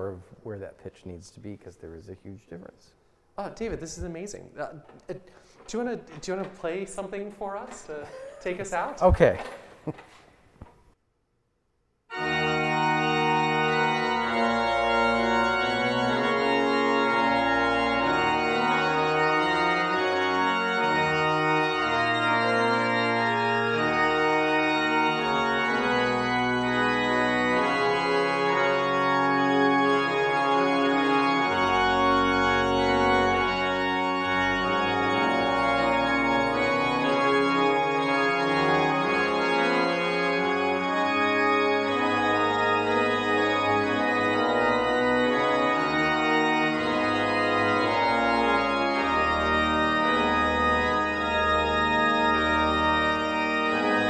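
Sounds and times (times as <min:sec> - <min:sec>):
pipe organ playing chords: 0:12.1 - 0:54.0.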